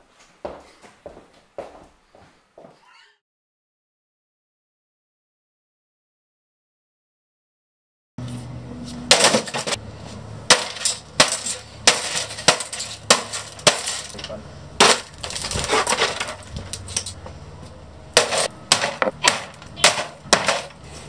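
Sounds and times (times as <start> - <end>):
pieces clattering: 10.5 - 17.2, 18.2 - 20.8
plastic and glass cracking: 10.5 - 17.2.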